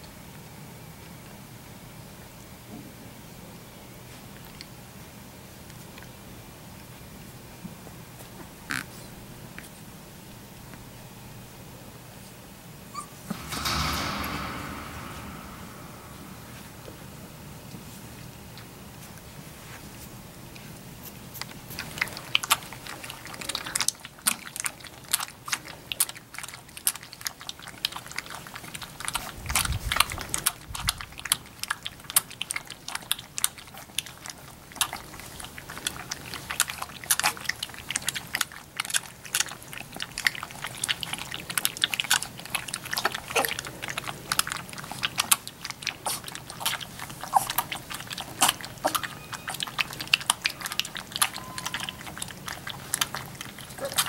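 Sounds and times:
puppies lapping food: 4.1s - 9.8s, 17.7s - 54.0s.

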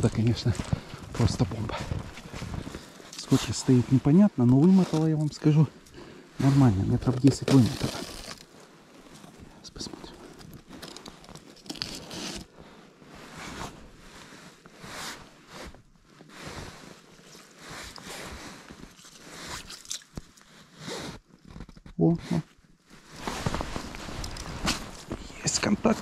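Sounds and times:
footsteps crunching through snow: 0.0s - 5.6s, 22.9s - 26.0s.

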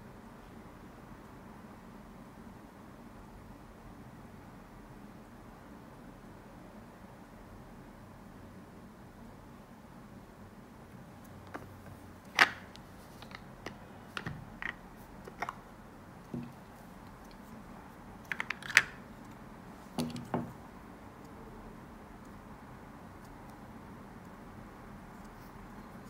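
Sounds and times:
clicks and knocks handling a box: 11.5s - 15.6s, 16.3s - 17.4s, 18.2s - 19.0s.

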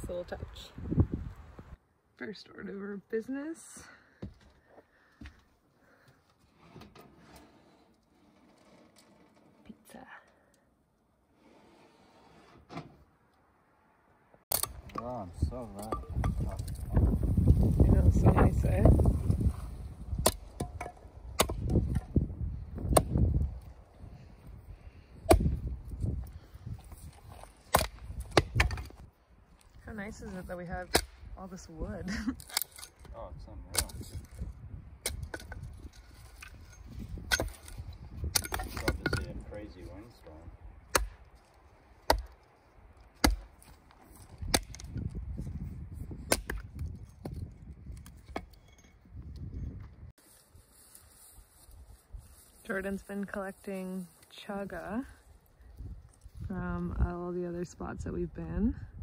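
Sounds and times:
wind rumbling on microphone: 0.0s - 1.8s, 14.7s - 32.2s, 33.0s - 40.9s, 44.1s - 50.1s, 55.2s - 59.0s
axe splitting firewood: 14.5s - 15.1s, 19.2s - 23.4s, 25.2s - 29.0s, 30.8s - 31.3s, 32.4s - 33.1s, 35.0s - 39.2s, 40.8s - 45.4s, 46.1s - 48.9s
firewood knocking: 27.2s - 29.1s, 40.9s - 45.0s.

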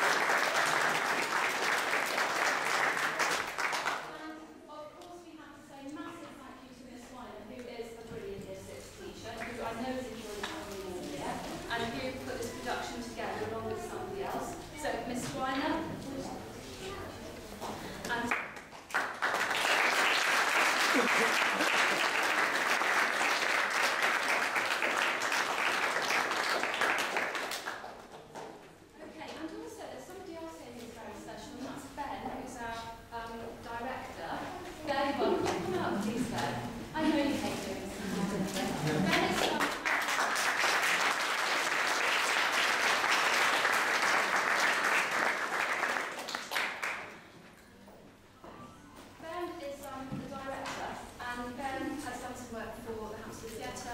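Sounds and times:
audience applauding: 0.0s - 4.1s, 18.3s - 28.4s, 39.1s - 47.2s.

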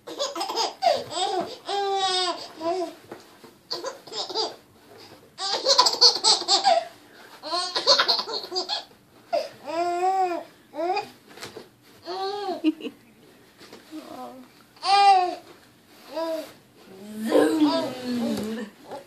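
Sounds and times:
baby giggling: 0.0s - 2.5s, 3.7s - 4.6s, 5.4s - 8.9s.

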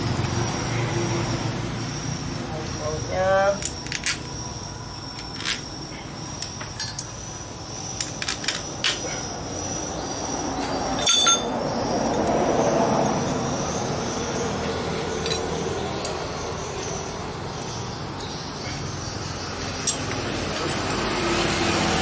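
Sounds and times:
metal tools clicking on engine: 3.6s - 4.4s, 5.1s - 5.7s, 6.4s - 7.2s, 8.0s - 9.0s, 11.0s - 12.3s, 15.1s - 18.4s, 19.1s - 20.9s
metallic clink ringing: 6.4s - 7.2s, 11.0s - 11.5s.

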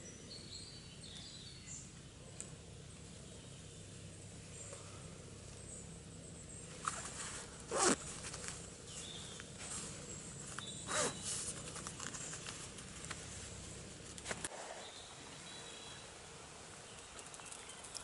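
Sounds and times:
rustling on leaf litter: 6.6s - 16.0s.

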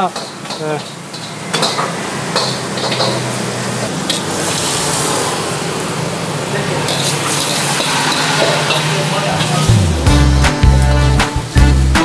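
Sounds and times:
food sizzling in a wok: 0.0s - 12.0s.

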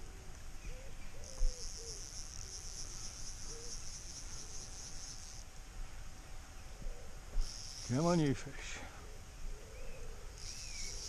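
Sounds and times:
insect trilling: 0.7s - 5.5s, 7.3s - 8.5s, 10.3s - 11.0s.

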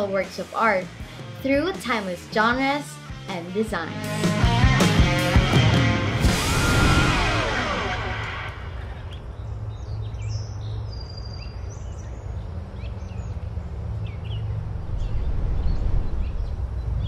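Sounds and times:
music: 0.0s - 9.2s
low outdoor rumble: 6.1s - 17.0s
birds chirping: 6.5s - 17.0s.

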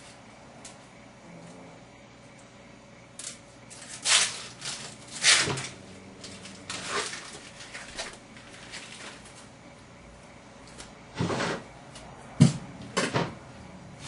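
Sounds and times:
kitchen handling rustles and knocks: 12.4s - 13.4s.

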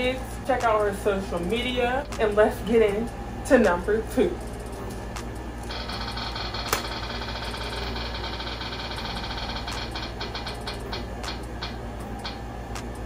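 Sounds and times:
steady low hum: 0.0s - 13.0s
spinner wheel ticking: 5.6s - 12.4s.

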